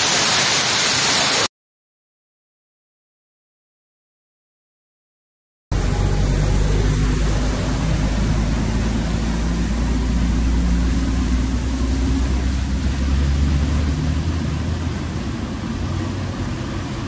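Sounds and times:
floodwater rushing: 0.0 - 1.5, 5.8 - 17.0
car engine rumble: 5.7 - 17.0.

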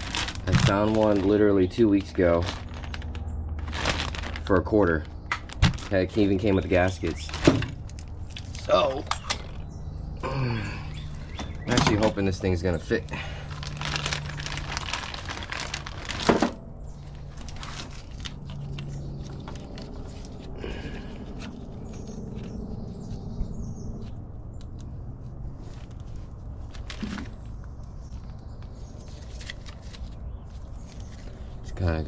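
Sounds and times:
rustling and light clicks: 25.6 - 31.8.

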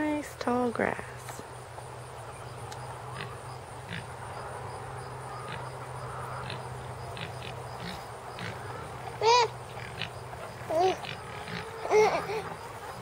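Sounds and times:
hens chirping: 1.4 - 13.0
loud hen call: 3.0 - 13.0.

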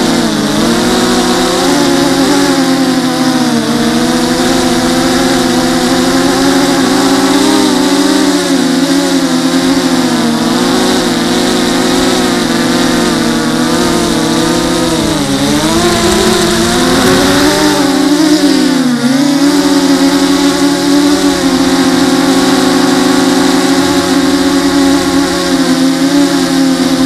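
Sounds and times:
drone motors and propellers whining: 0.0 - 27.0.

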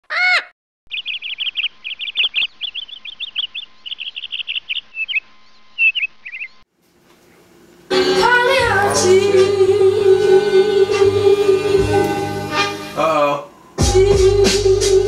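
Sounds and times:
small birds chirping: 0.9 - 6.7.

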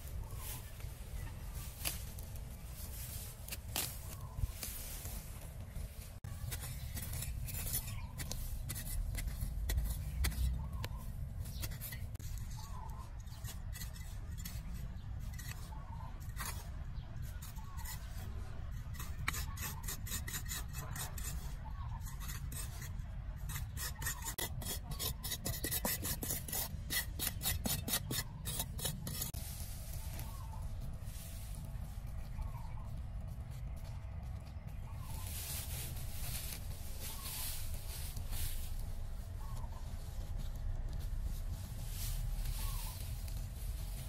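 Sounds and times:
hands scraping loose dirt: 0.0 - 44.0
trowel scraping into dry soil: 1.6 - 31.8.

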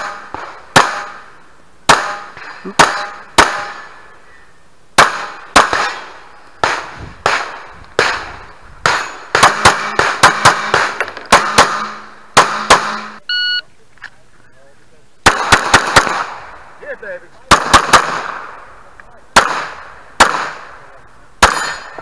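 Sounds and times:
pistol firing shots: 0.0 - 4.0, 5.0 - 13.2, 15.2 - 16.6, 17.5 - 18.7, 19.3 - 22.0.

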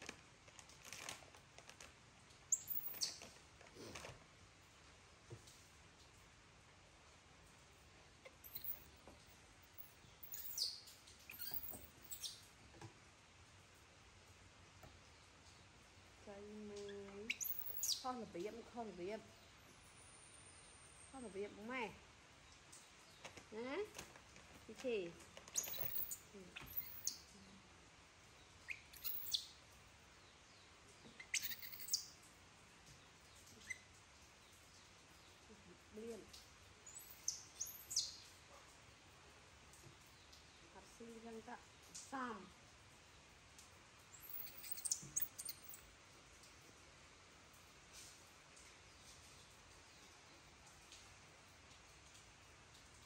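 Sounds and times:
baby monkey squeaking: 2.5 - 3.2, 8.4 - 8.8, 10.2 - 12.4, 17.3 - 18.1, 25.5 - 27.2, 28.7 - 29.5, 31.2 - 32.1, 36.9 - 38.2, 44.2 - 45.8.

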